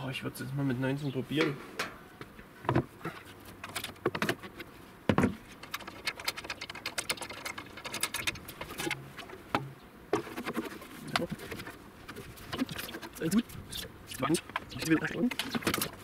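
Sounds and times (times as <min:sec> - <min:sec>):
plastic clicking and scraping on metal: 0:05.5 - 0:09.0.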